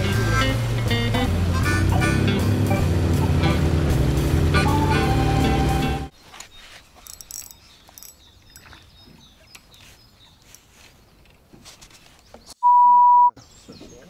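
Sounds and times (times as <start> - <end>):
background music: 0.0 - 6.1.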